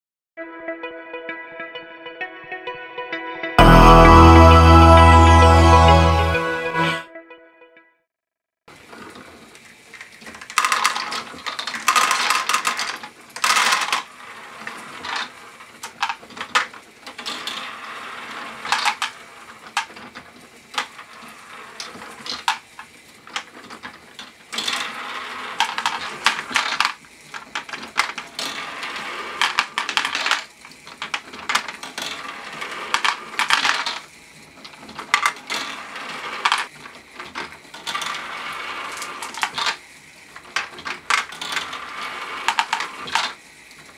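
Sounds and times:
balls rattling through mechanism: 0:08.9 - 0:43.9
plastic balls clattering: 0:10.1 - 0:17.8, 0:18.4 - 0:21.0, 0:21.8 - 0:39.8, 0:40.4 - 0:43.4.

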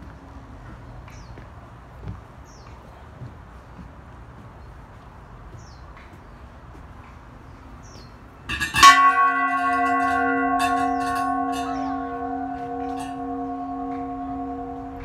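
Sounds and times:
brass bell ringing: 0:08.5 - 0:15.0.

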